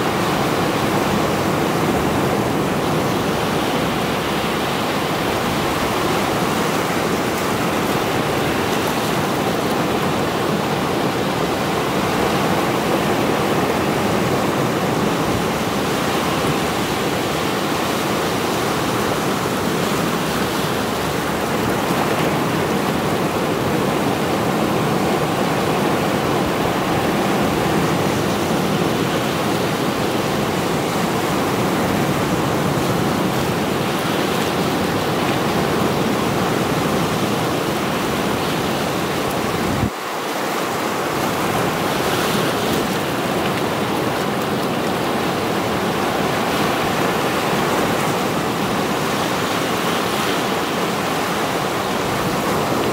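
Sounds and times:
sea waves breaking over rocks: 0.0 - 52.9.

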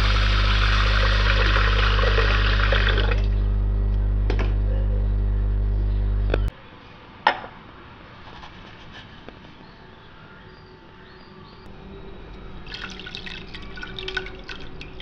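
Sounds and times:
water pouring into pot: 0.0 - 3.3, 12.6 - 15.0
loud low hum: 0.0 - 6.5.

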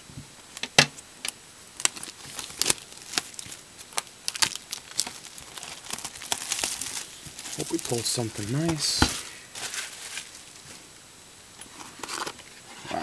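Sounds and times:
plastic shrink wrap tearing: 1.8 - 10.6.

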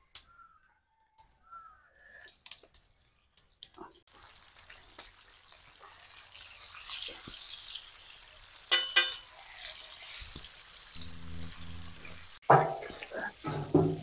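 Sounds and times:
fish sizzling in hot oil: 4.1 - 14.0.

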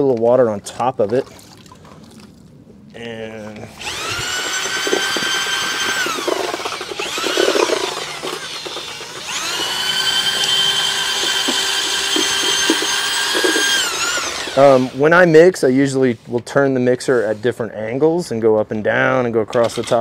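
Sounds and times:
paddle mixer churning mortar: 3.3 - 15.2
drill motor whining: 3.8 - 15.0.

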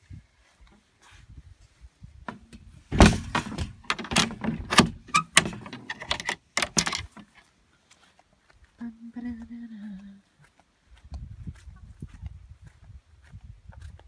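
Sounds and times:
door knocks and clunks: 2.3 - 7.1
phone handling rattles: 3.0 - 7.3.

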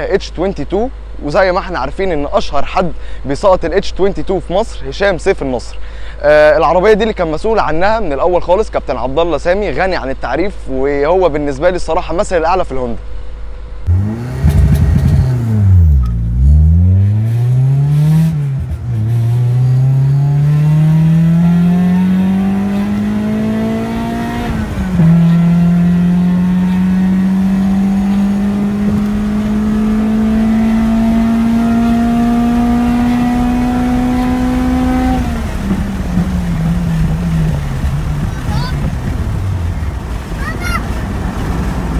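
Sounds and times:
car engine accelerating hard: 13.8 - 41.9.

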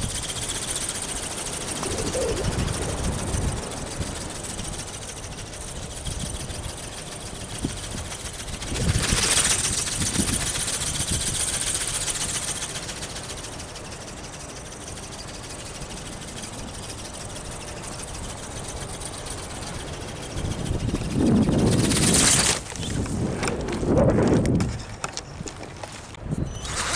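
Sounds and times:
wings flapping rapidly: 0.0 - 25.8, 26.6 - 26.9
wind on microphone: 1.2 - 12.4, 18.0 - 26.9.

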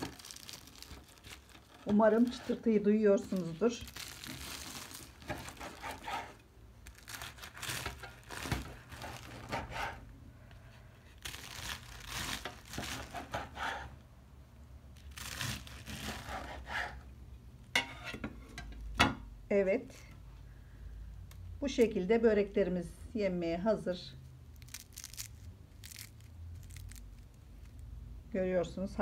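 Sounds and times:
knife crunching through crisp pastry: 0.0 - 2.6, 3.4 - 10.1, 11.1 - 14.0, 15.0 - 17.0, 24.5 - 27.9.

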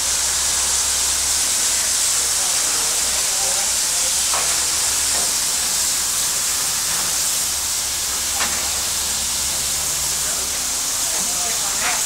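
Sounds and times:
steam hissing from locomotive: 0.0 - 12.0.

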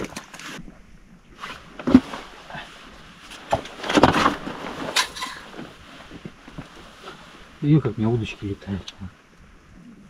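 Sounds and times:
rustling: 1.3 - 8.8.

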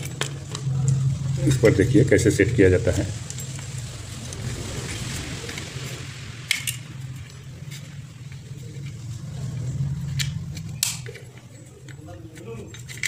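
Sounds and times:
steady low hum: 0.0 - 13.0
small parts clicking: 10.0 - 13.0.

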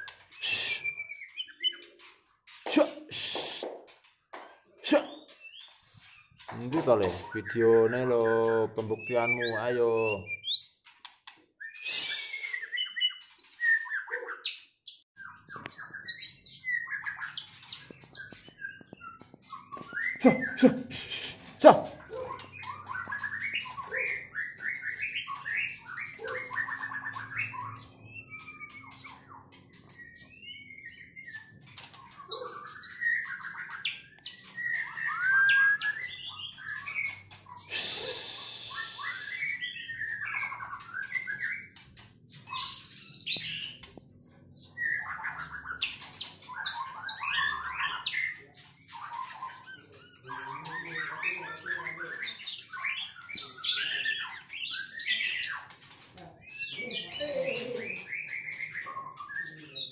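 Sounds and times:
bird singing whistles and chirps: 0.0 - 1.9, 5.1 - 10.8, 11.6 - 55.7, 56.4 - 59.9.

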